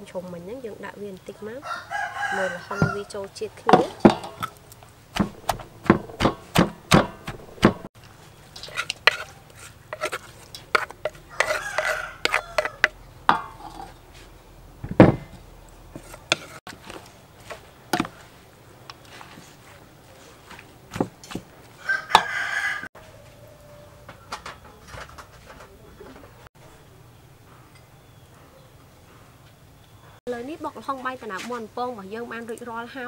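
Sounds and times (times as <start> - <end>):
pestle pounding in wooden mortar: 5.1 - 7.9, 10.0 - 13.6
spoon scraping metal bowl: 5.2 - 7.9, 8.6 - 14.0, 15.9 - 16.6.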